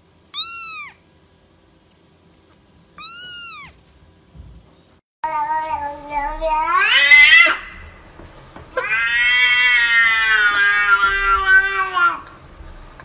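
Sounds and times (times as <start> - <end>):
cat meowing: 0.3 - 1.0, 3.0 - 3.8, 8.8 - 12.3.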